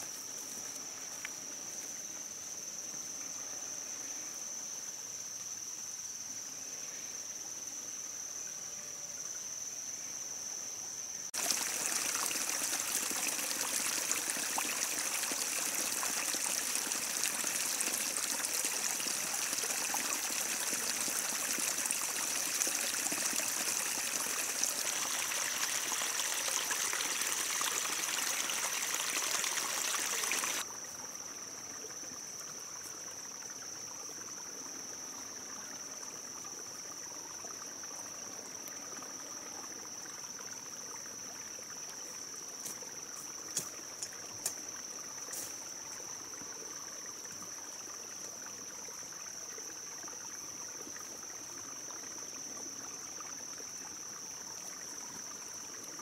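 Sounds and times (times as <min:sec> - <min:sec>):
high-pitched insect chorus: 0:00.0 - 0:56.0
running water: 0:11.4 - 0:31.0.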